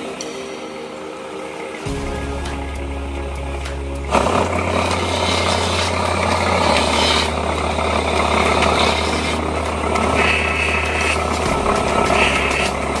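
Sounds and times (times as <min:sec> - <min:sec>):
polishing wheel humming: 0:00.0 - 0:13.0
handle buffing against wheel: 0:04.1 - 0:13.0.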